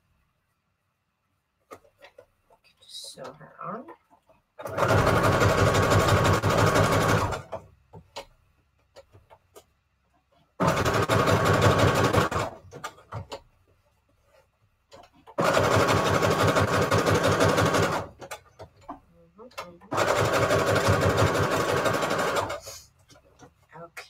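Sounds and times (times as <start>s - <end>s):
sewing machine stitching: 4.6s - 7.7s, 10.6s - 13.4s, 15.0s - 18.8s, 19.6s - 22.9s
small clicks and taps: 7.9s - 10.4s.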